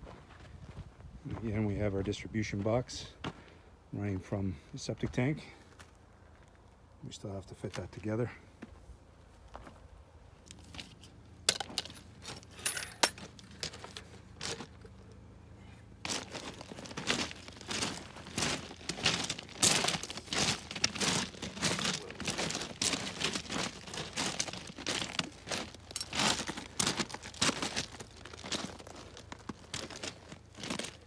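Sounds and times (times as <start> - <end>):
rocks crunching and clicking: 10.4 - 15.2, 16.0 - 31.0.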